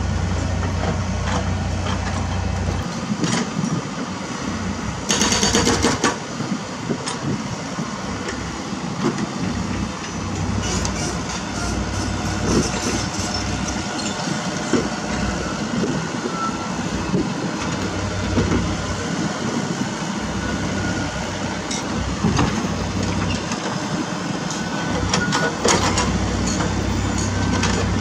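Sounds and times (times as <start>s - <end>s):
diesel engine running: 0.0s - 28.0s
hydraulic breaker hammering rock: 5.1s - 6.2s.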